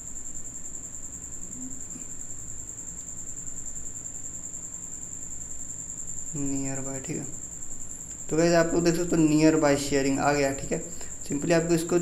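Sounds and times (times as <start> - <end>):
high-pitched continuous tone: 0.0 - 12.0
low room noise: 0.0 - 12.0.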